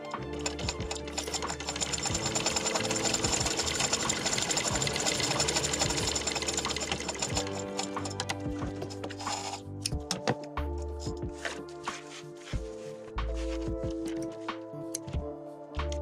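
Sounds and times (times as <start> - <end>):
sewing machine clatter: 0.0 - 9.6.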